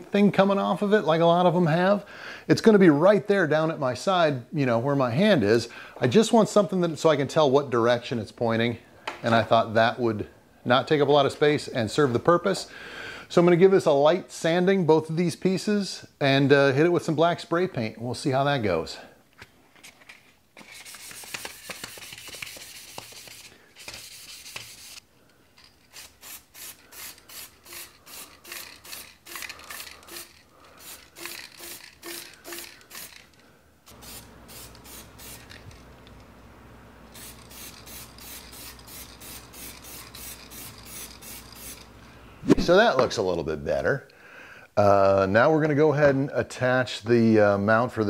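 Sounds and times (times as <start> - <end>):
spray paint can hissing: 20.8 - 25.0, 25.9 - 33.2, 33.9 - 35.6, 37.1 - 41.9.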